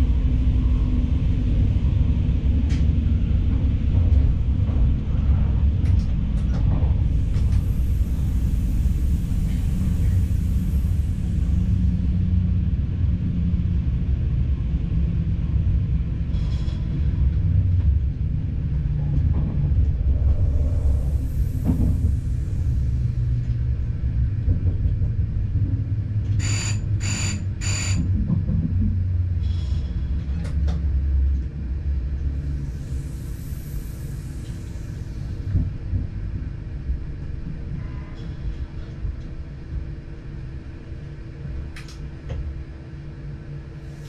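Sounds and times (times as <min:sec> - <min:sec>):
diesel train rumble: 0:00.0 - 0:44.0
short high-pitched beeps: 0:26.4 - 0:28.0.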